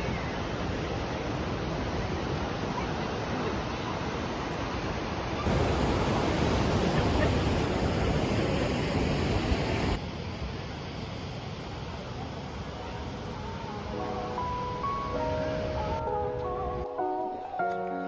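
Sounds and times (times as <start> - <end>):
surf breaking on beach: 0.0 - 10.0.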